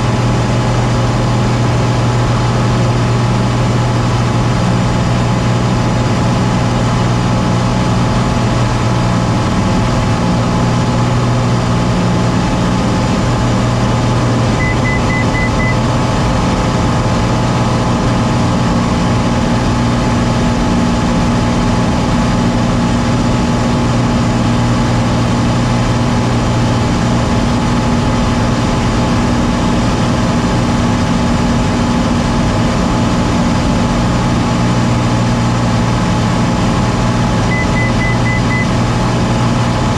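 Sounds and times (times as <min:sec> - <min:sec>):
airplane engine and propeller droning: 0:00.0 - 0:39.9
short high beeps: 0:14.6 - 0:15.8, 0:37.5 - 0:38.8.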